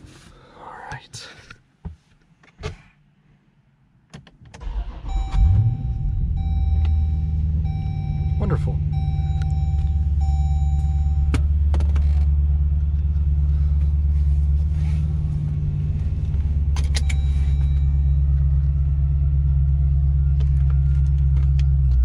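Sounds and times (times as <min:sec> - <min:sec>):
car engine idling: 0:04.6 - 0:22.0
steady tone: 0:05.1 - 0:11.6.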